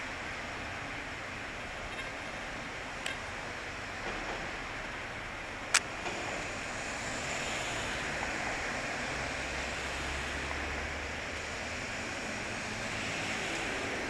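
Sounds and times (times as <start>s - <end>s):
passing cars hiss: 2.5s - 14.0s
vehicle rumbling by: 5.9s - 14.0s.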